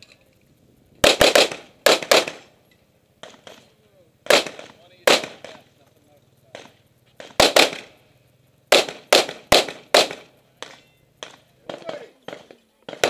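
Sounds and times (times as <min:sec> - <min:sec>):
pistol gunshots: 0:01.0 - 0:02.5, 0:03.2 - 0:03.6, 0:04.2 - 0:05.6, 0:06.5 - 0:08.0, 0:08.7 - 0:13.0.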